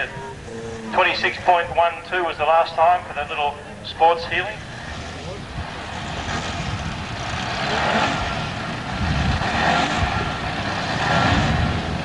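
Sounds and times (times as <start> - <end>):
racing car engine running hard: 3.0 - 12.0.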